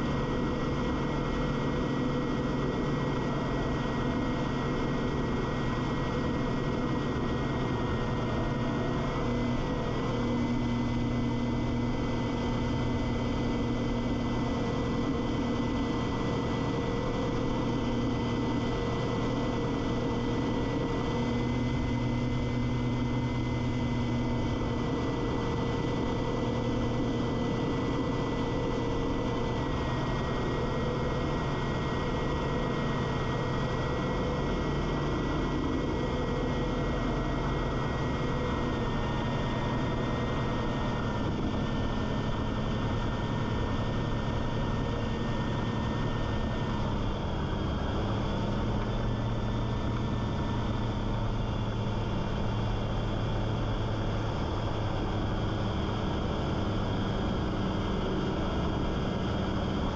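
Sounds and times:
ultralight engine and propeller: 0.0s - 59.9s.

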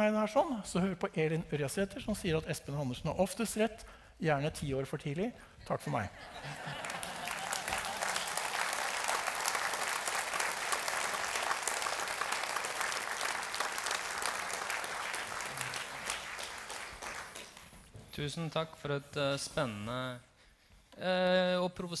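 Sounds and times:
large audience applauding: 6.3s - 17.9s.

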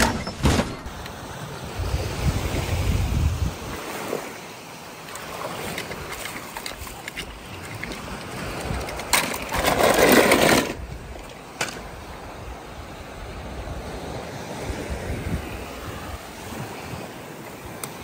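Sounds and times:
wind buffeting microphone: 0.0s - 4.3s, 5.2s - 18.0s
surf washing on beach: 0.0s - 18.0s.

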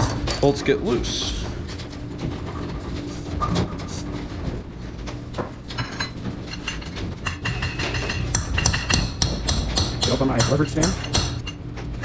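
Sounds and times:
metal parts and tools clinking: 0.0s - 0.7s, 5.7s - 9.2s.

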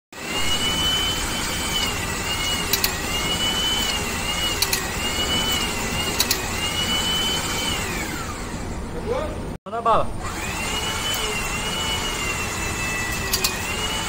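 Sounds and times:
hydraulic pump whining: 0.2s - 9.5s, 10.2s - 14.0s
torque wrench double clicks: 4.6s - 4.9s, 6.1s - 6.5s, 13.3s - 13.6s.

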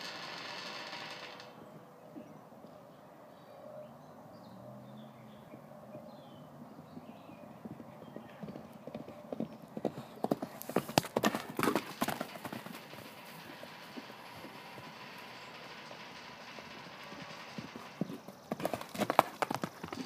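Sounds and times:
horse galloping on dirt: 6.6s - 20.0s.

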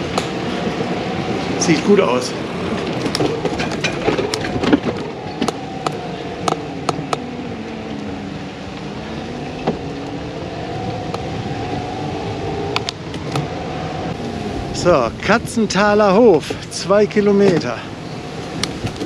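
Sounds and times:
sharp clicks and rattles: 0.0s - 8.1s
bicycle riding hum: 0.0s - 19.0s.

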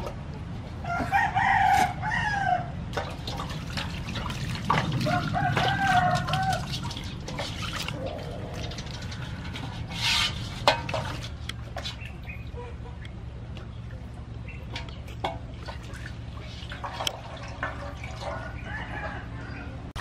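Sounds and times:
rooster crowing: 0.8s - 2.7s, 5.0s - 6.8s, 18.2s - 19.8s
water splashing in metal basin: 2.9s - 13.1s, 13.7s - 20.0s.

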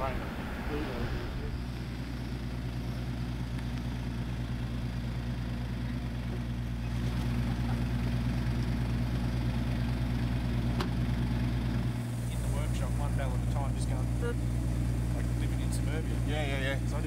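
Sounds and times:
pickup truck engine running: 0.0s - 17.0s.

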